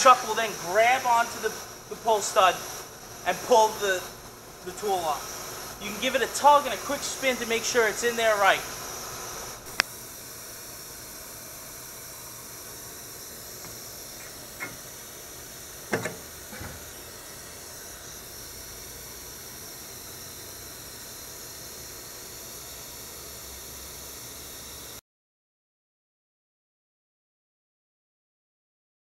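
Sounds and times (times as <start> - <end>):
steady hiss: 0.0 - 25.0
tool holder knocking into spindle: 15.9 - 16.8.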